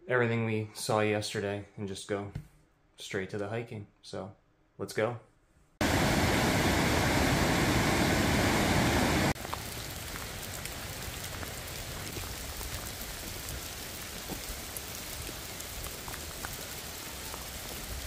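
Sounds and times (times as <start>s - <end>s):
steady rain: 5.8s - 18.0s.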